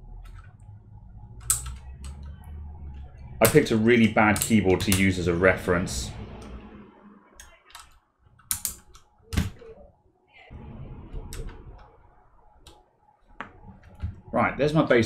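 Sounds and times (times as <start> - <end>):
keycaps clicking onto keyboard switches: 3.4 - 5.1, 7.4 - 9.5.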